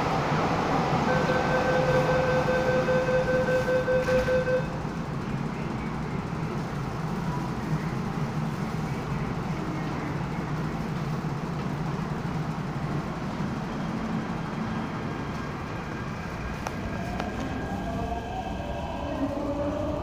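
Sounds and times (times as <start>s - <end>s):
electric train rumbling: 0.0s - 20.0s.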